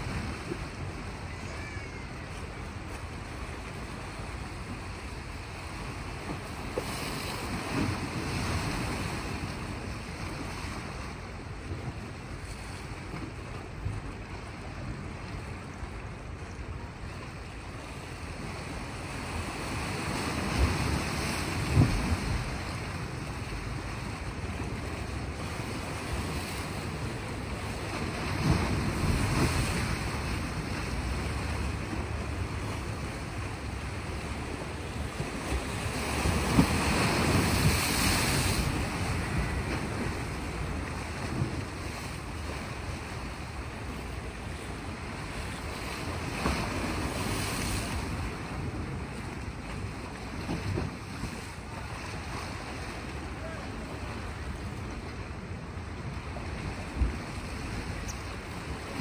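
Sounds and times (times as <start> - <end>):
waves washing on rocky shore: 0.0 - 59.0
wind rumble on microphone: 6.0 - 59.0.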